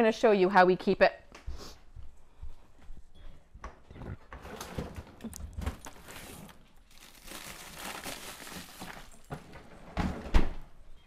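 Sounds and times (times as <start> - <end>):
plastic bag crinkling: 5.6 - 9.4.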